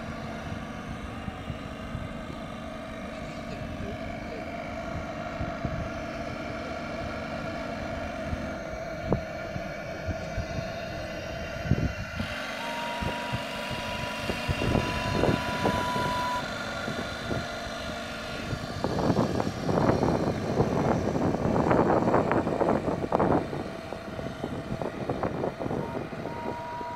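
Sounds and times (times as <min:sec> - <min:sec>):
motor hum: 0:00.0 - 0:26.9
steam whistle blowing: 0:12.2 - 0:16.5, 0:25.7 - 0:26.9.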